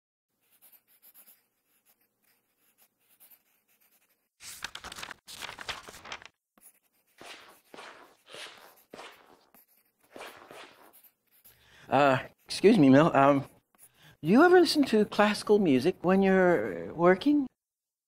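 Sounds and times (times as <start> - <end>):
pencil scratching on paper: 0.3 - 4.6, 6.6 - 14.8.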